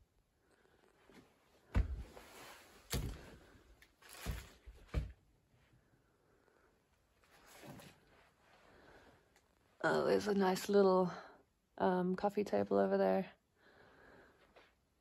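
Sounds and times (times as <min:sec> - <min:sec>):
dull thumps: 0:01.7 - 0:02.2.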